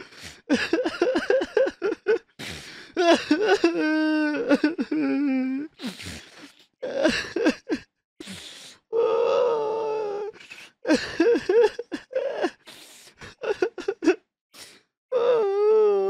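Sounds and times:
gasping breaths: 0.0s - 0.6s, 2.3s - 3.1s, 5.6s - 6.8s, 8.2s - 10.9s, 12.1s - 13.5s
person sobbing: 0.0s - 5.8s, 6.8s - 7.9s, 9.0s - 14.2s.

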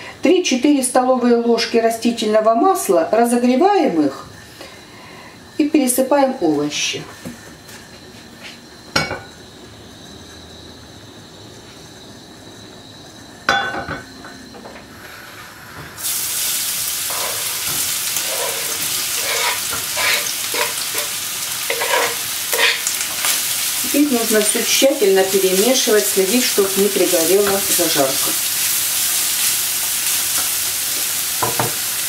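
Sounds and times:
oil heating in frying pan: 14.6s - 32.0s
vegetables sizzling in hot oil: 15.1s - 32.0s.

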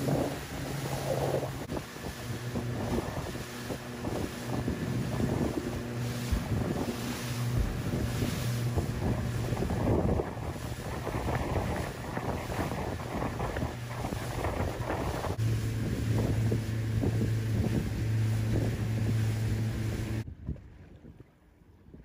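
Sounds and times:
boat engine humming: 0.0s - 21.8s
choppy sea splashing: 0.0s - 22.0s
wind buffeting microphone: 0.0s - 22.0s.

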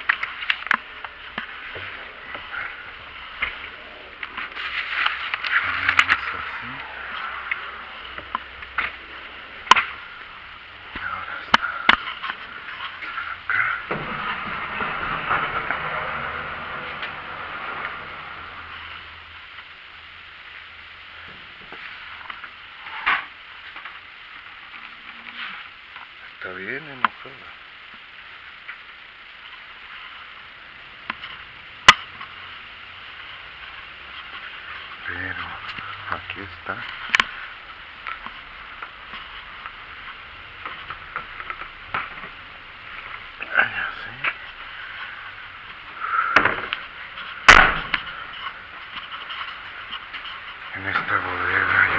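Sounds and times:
steady hiss: 0.0s - 51.9s
sharp loud knock: 47.5s - 48.0s.

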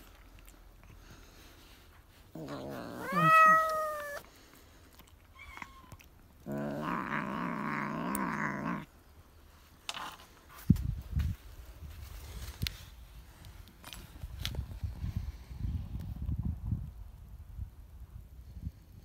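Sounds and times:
cat yowling: 2.4s - 4.2s, 5.3s - 8.9s.

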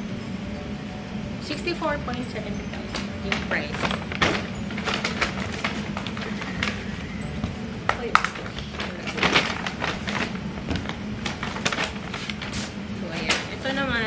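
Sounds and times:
shopping bag rustling and crackling: 2.8s - 13.8s.

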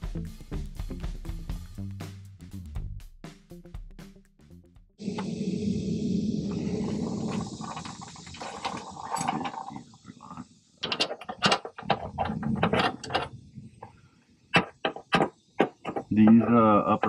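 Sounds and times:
sharp clicks and knocks: 10.3s - 13.9s, 14.5s - 17.0s
hand tools rattling on metal: 10.8s - 13.4s.

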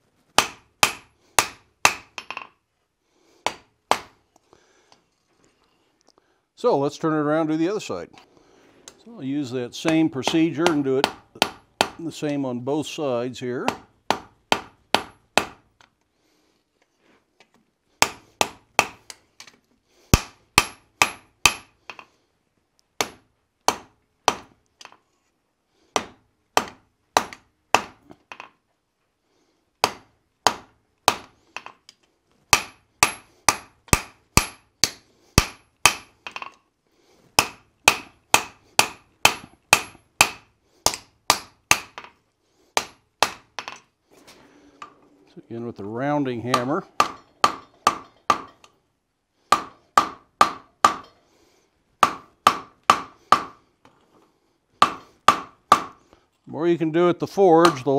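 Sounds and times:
hammer striking steel on anvil: 20.2s - 22.0s, 32.6s - 36.2s, 37.4s - 42.1s, 46.5s - 48.6s, 49.5s - 51.2s, 57.6s - 57.9s.

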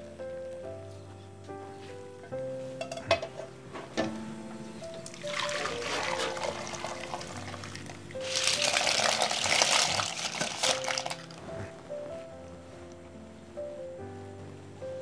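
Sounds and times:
soft background music: 0.0s - 15.0s
broth pouring into a pot: 5.0s - 11.4s
clam shells clattering and splashing: 5.3s - 11.4s.

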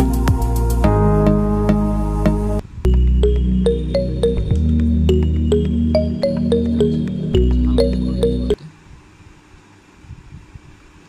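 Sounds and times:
sustained low bass: 0.0s - 8.6s
plucked synth notes: 0.2s - 8.6s.

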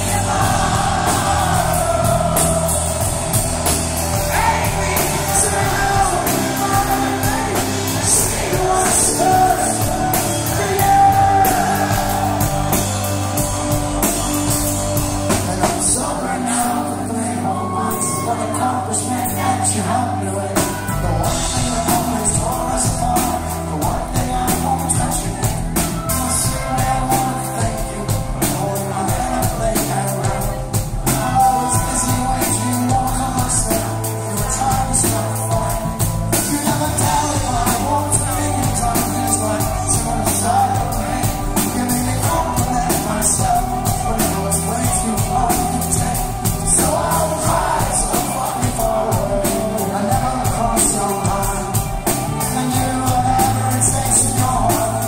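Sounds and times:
live rock band playing: 0.0s - 55.0s
man singing: 0.0s - 55.0s.

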